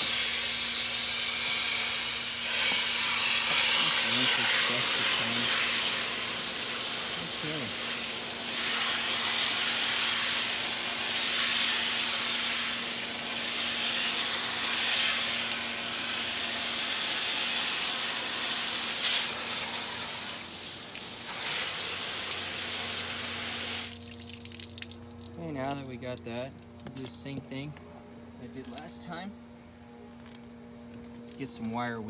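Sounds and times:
pressure washer spray hissing: 0:00.0 - 0:24.0
steady low hum: 0:00.0 - 0:32.0.

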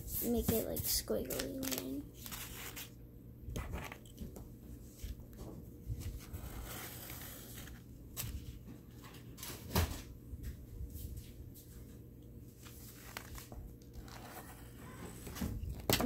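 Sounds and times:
paper rustling: 0:00.2 - 0:02.9, 0:12.5 - 0:16.0.

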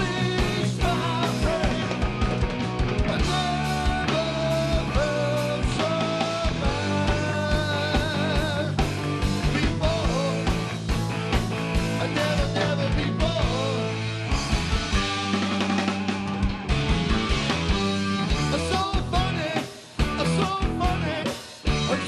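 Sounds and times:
man singing lead vocals: 0:00.0 - 0:02.4, 0:03.0 - 0:10.8, 0:11.8 - 0:14.2, 0:17.8 - 0:22.0
bass guitar: 0:00.0 - 0:22.0
drum kit steady beat: 0:00.0 - 0:22.0
electric guitar: 0:00.0 - 0:22.0.

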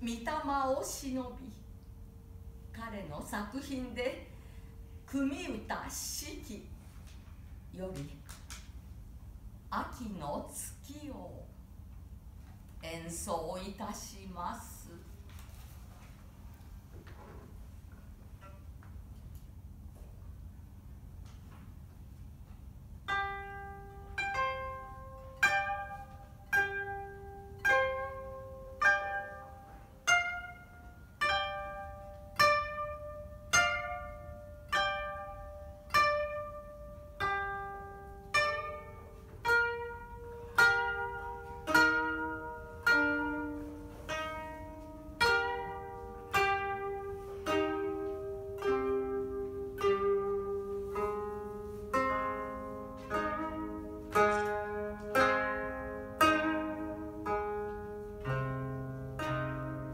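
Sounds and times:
koto duet plucked notes: 0:18.3 - 0:18.8, 0:23.0 - 0:59.9.

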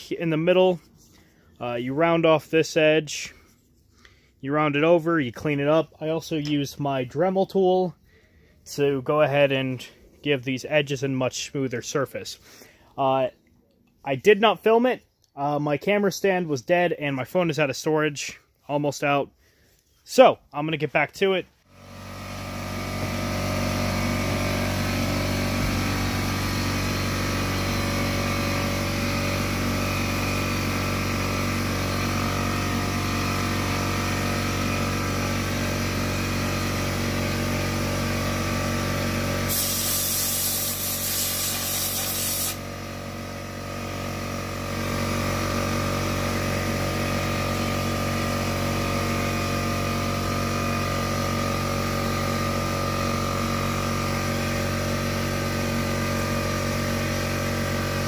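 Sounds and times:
sandblasting hiss: 0:39.5 - 0:42.6.

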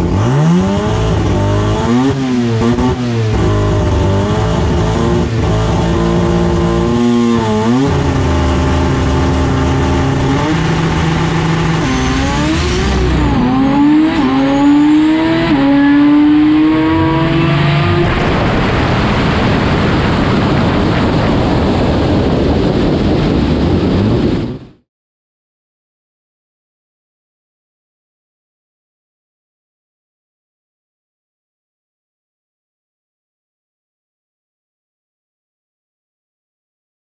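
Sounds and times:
race car engine revving: 0:00.0 - 0:24.3
wind and tyre noise: 0:00.0 - 0:24.8.

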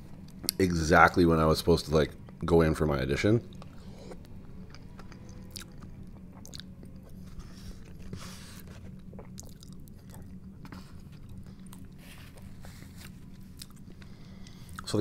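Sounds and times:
steady low hum: 0:00.0 - 0:15.0
chewing and biting food: 0:03.5 - 0:14.9.

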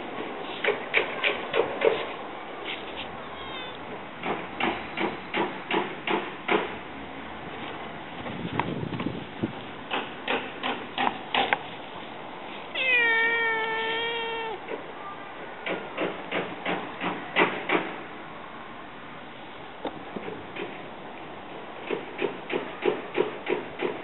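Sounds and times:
cat meowing: 0:03.2 - 0:03.8, 0:12.7 - 0:14.7.

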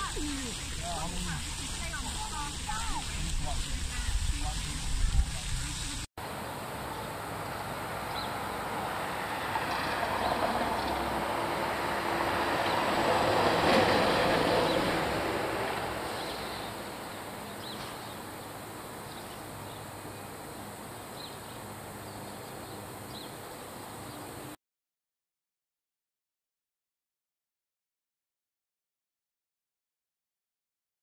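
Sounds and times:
passing vehicle rumble: 0:00.0 - 0:24.6.

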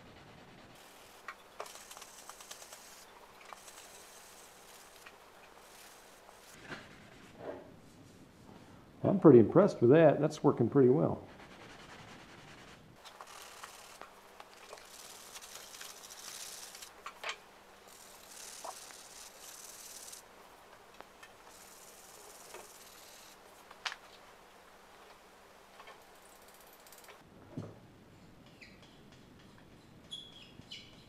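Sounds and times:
sanding sponge scratching metal: 0:00.0 - 0:05.0, 0:14.8 - 0:16.9, 0:17.9 - 0:20.2.

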